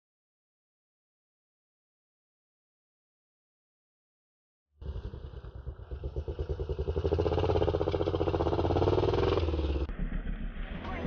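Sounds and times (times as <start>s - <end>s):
dirt bike engine revving: 4.8s - 11.0s.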